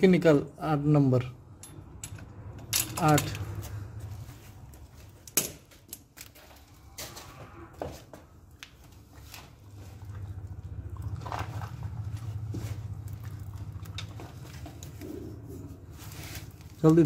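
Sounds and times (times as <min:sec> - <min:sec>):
hand tools clicking on metal: 0:01.6 - 0:03.6
low rumble: 0:09.7 - 0:15.6.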